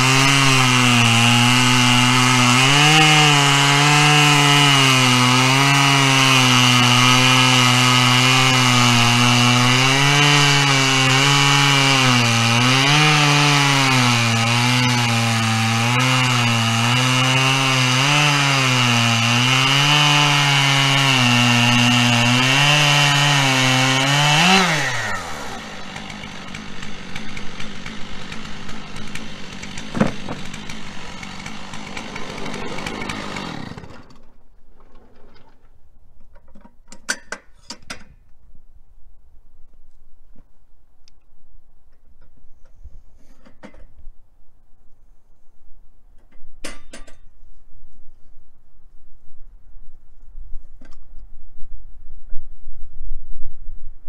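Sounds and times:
chainsaw cutting through log: 0.0s - 34.3s.

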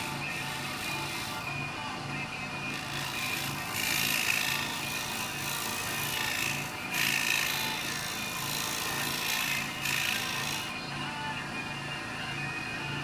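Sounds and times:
background music: 0.0s - 13.0s
lathe gouge scraping wood: 2.7s - 10.7s.

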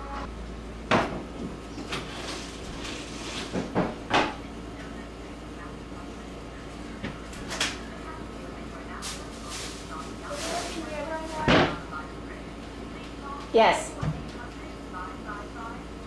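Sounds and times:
kitchen drawers and doors thudding: 0.9s - 4.4s, 11.3s - 11.9s.

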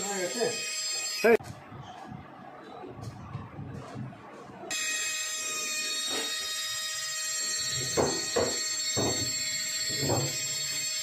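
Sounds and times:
rotary micromotor whining: 4.7s - 11.0s.

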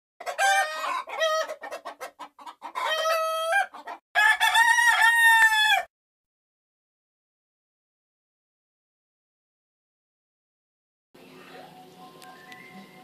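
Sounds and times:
rooster crowing: 0.2s - 1.6s, 2.8s - 5.9s
rooster clucking: 0.2s - 4.9s.

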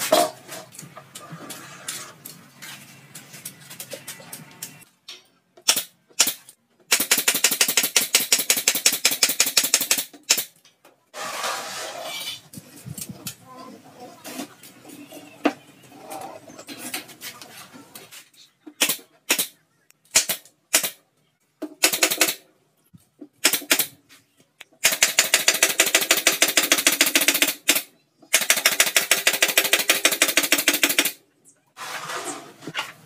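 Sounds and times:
nail gun firing: 5.6s - 10.5s, 20.1s - 21.0s, 21.8s - 22.4s, 23.4s - 23.9s, 24.8s - 31.2s.

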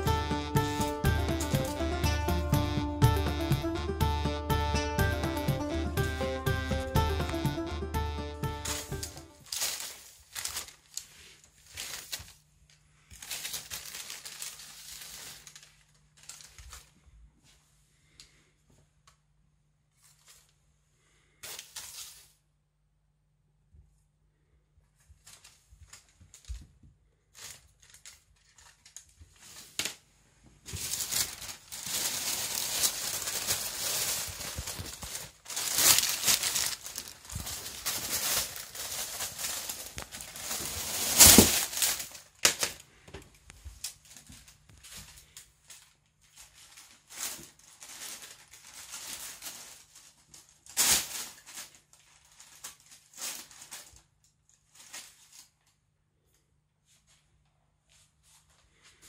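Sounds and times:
paper bag rustling and crinkling: 0.0s - 2.5s, 8.2s - 17.1s, 20.0s - 20.6s, 21.4s - 22.4s, 25.0s - 55.8s.

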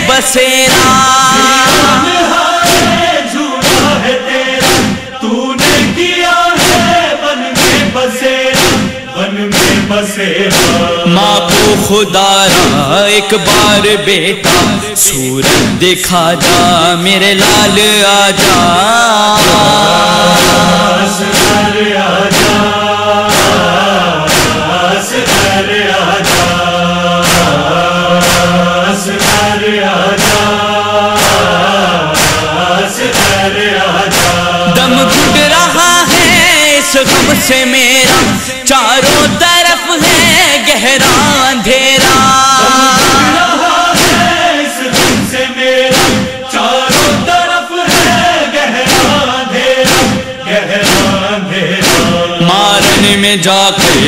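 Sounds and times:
voices chanting: 0.0s - 15.7s, 16.4s - 40.4s
lead singer singing: 0.0s - 54.0s
sharp beat: 0.0s - 54.0s.

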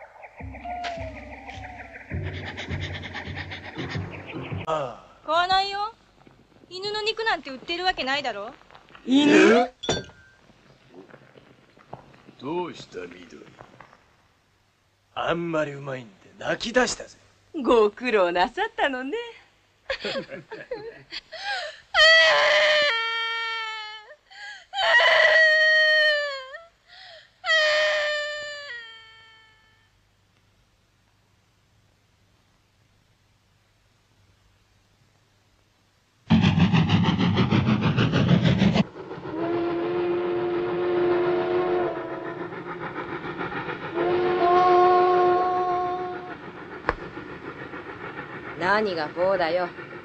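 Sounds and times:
steam locomotive chugging: 0.0s - 4.8s, 36.3s - 50.0s
girl sobbing: 21.2s - 29.7s
steam whistle blasts: 39.2s - 42.5s, 43.9s - 46.3s.

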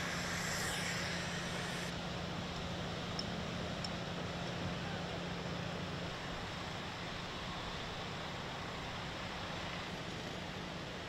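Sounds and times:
low hum: 0.0s - 2.0s.

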